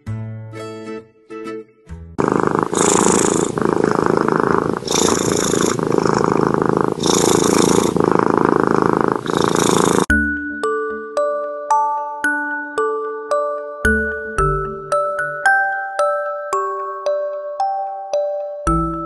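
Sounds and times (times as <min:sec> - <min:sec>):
cat purring loudly: 0:02.2 - 0:10.1.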